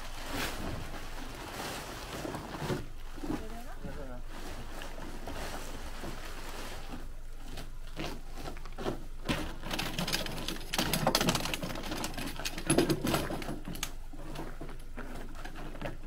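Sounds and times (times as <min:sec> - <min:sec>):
tent poles clicking and rattling: 0:04.3 - 0:16.0.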